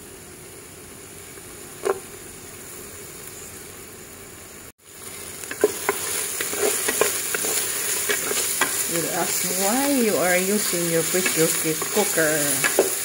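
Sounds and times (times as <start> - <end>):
onion sizzling in hot oil: 0.1 - 13.0
wooden spatula scraping pot: 5.5 - 13.0.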